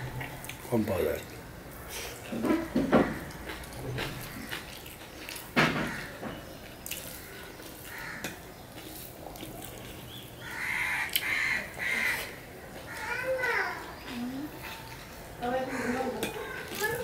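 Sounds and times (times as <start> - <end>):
crow cawing: 5.7 - 6.2, 7.2 - 8.4, 10.4 - 13.7, 15.6 - 16.7.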